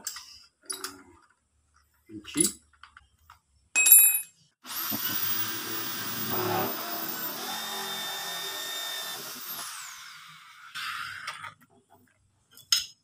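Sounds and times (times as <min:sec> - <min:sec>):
electric drill boring plastic: 0:04.6 - 0:11.5.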